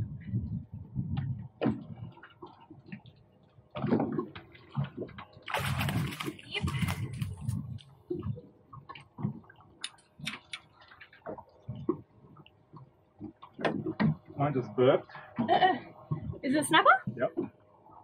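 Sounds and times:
water sloshing against boat: 0.0 - 18.0
fish splashing: 3.7 - 14.2.

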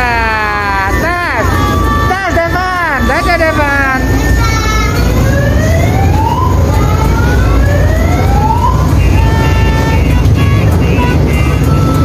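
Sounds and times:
electronic siren wails: 0.0 - 10.2
ride train rumbling: 0.0 - 12.0
held electronic tones: 0.4 - 5.5.

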